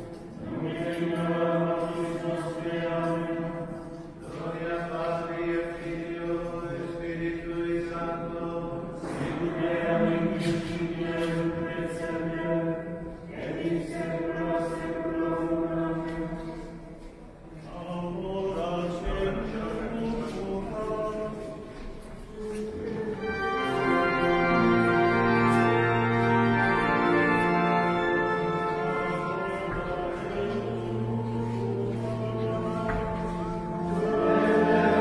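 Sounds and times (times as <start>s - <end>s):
male choir chanting: 0.4s - 3.6s, 4.2s - 16.4s, 17.7s - 21.5s, 26.2s - 35.0s.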